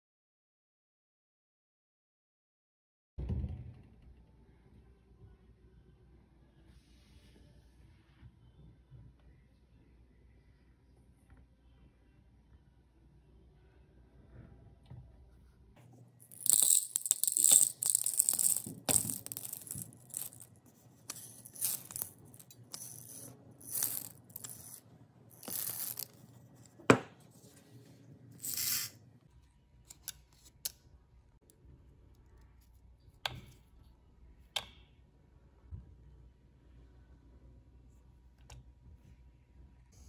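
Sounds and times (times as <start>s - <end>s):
peppercorns rattling into cup: 16.2s - 26.7s, 28.4s - 29.0s.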